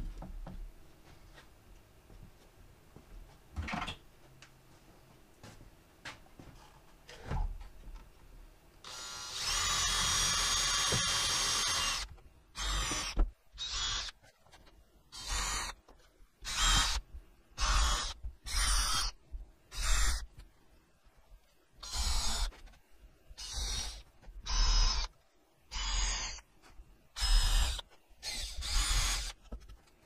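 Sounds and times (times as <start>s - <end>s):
cordless drill driving screws: 8.8s - 14.1s, 15.2s - 15.8s, 16.4s - 17.0s, 17.6s - 19.1s, 19.7s - 20.2s, 21.8s - 22.5s, 23.4s - 25.1s, 27.2s - 29.4s.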